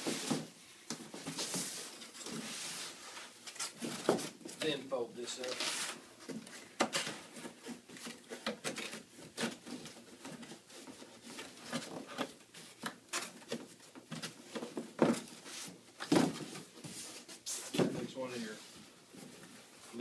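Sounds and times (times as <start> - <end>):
cardboard rustling and creasing: 5.3 - 20.0.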